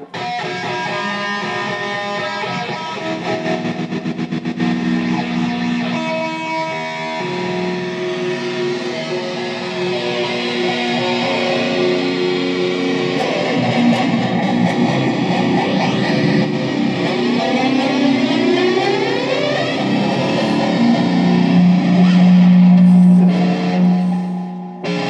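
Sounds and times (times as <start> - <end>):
electric guitar through effects: 0.0 - 25.0
loud steady low note: 6.7 - 24.8.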